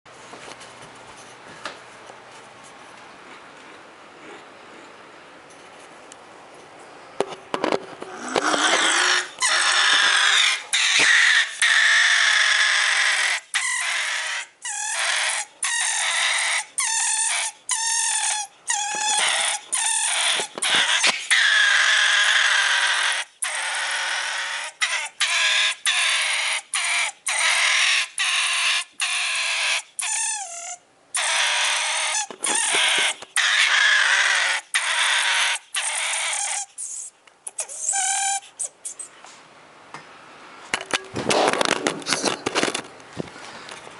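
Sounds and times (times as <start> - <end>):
pine marten growling: 8.0 - 11.4.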